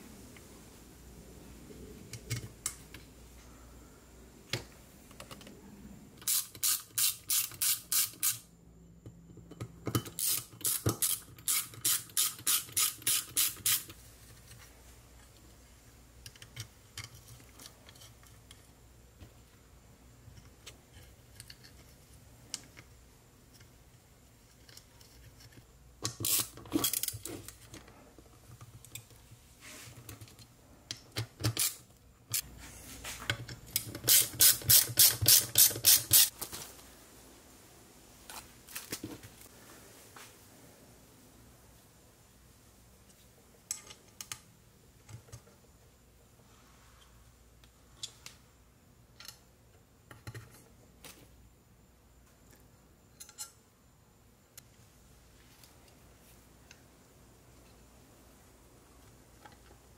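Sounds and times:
ratchet wrench clicking: 0:06.2 - 0:08.4, 0:10.2 - 0:13.9, 0:26.2 - 0:27.1, 0:33.8 - 0:36.3.

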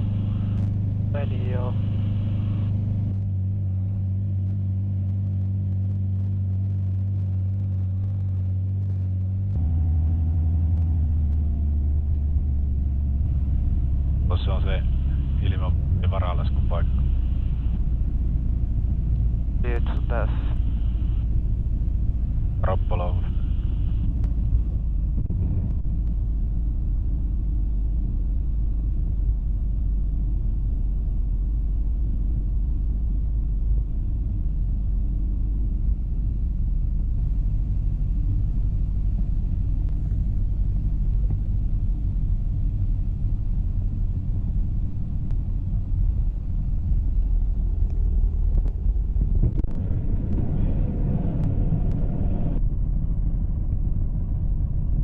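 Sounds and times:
airflow noise: 0:00.0 - 0:04.0, 0:09.6 - 0:34.3
motorglider engine rumble: 0:00.0 - 0:55.0.

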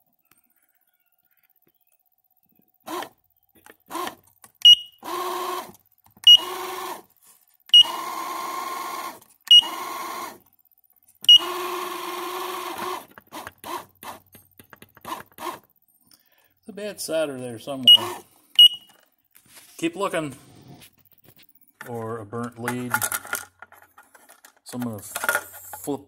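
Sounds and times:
tiller pilot motor running: 0:02.8 - 0:04.2, 0:05.0 - 0:07.1, 0:07.8 - 0:10.5, 0:11.3 - 0:15.7, 0:17.9 - 0:18.7
short high beep: 0:04.7 - 0:05.0, 0:17.9 - 0:19.0.

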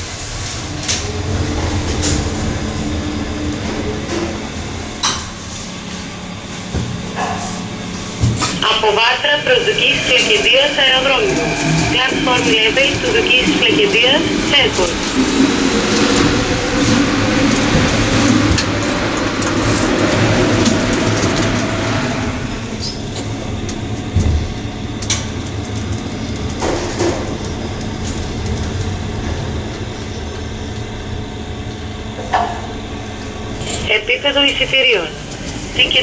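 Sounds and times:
lift rushing noise: 0:00.0 - 0:22.8
lift travelling hum: 0:00.0 - 0:36.0.

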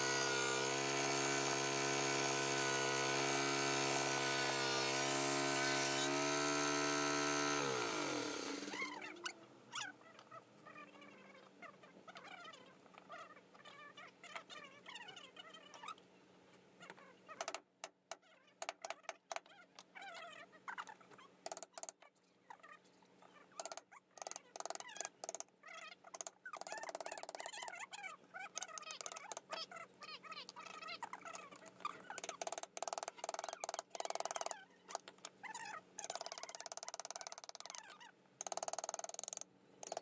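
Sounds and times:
chisel cutting into wood: 0:00.0 - 0:08.9
wavering pitched calls: 0:05.6 - 0:16.0.

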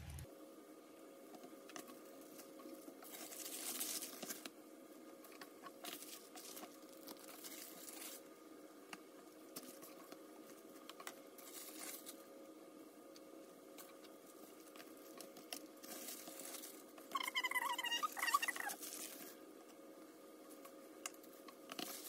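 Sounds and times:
faint steady hum: 0:00.0 - 0:22.0
plastic gloves crinkling: 0:01.8 - 0:04.6, 0:05.2 - 0:08.3, 0:09.2 - 0:12.3, 0:13.7 - 0:19.6, 0:20.4 - 0:22.0.

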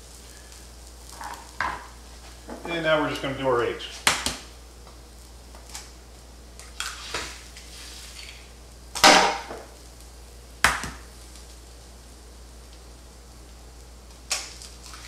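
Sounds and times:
faint frying sizzle: 0:00.0 - 0:15.0
eggs cracking on a griddle: 0:00.4 - 0:02.6, 0:03.9 - 0:11.6, 0:12.6 - 0:15.0.

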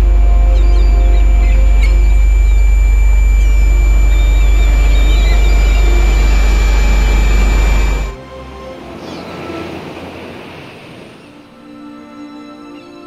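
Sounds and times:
high-pitched whine: 0:00.0 - 0:08.2
loud low hum: 0:00.0 - 0:08.2
faint bird-like chirps: 0:00.4 - 0:08.1.

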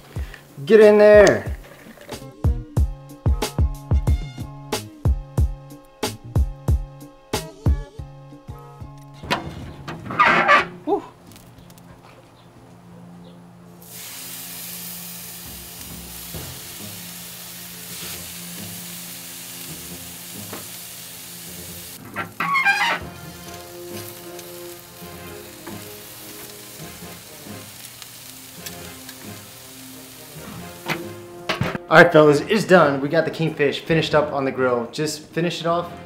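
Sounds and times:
food sizzling on a grill: 0:13.8 - 0:31.6.

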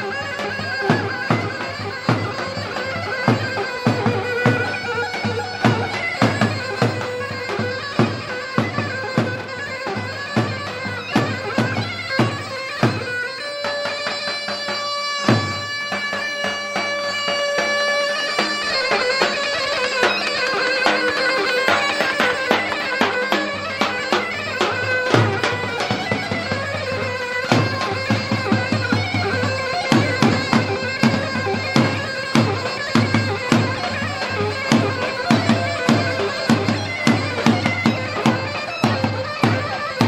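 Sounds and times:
shrill reed pipe melody: 0:00.0 - 0:40.0.

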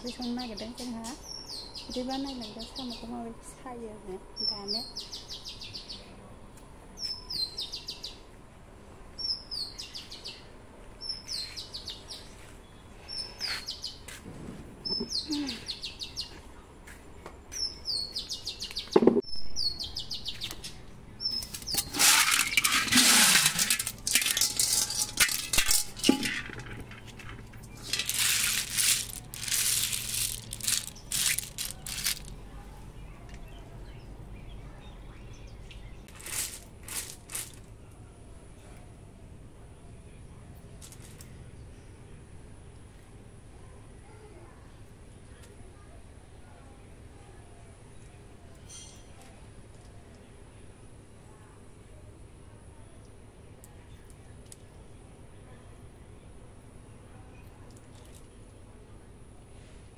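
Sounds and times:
rustling rattling noise: 0:21.4 - 0:32.4, 0:36.1 - 0:37.7.

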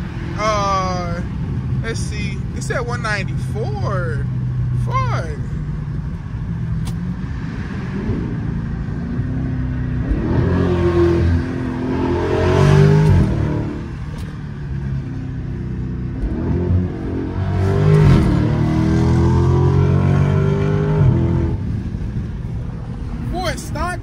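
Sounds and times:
car engine accelerating hard: 0:06.8 - 0:22.1.

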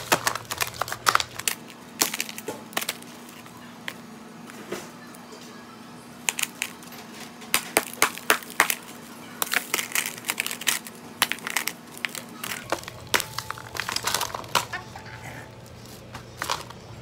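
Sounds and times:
hammer cracking dry ice: 0:07.5 - 0:15.5.

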